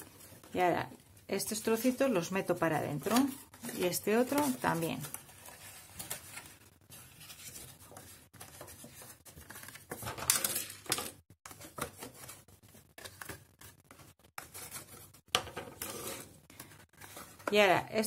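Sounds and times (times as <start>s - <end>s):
cardstock rustling and scraping: 3.0s - 10.8s, 11.4s - 17.6s.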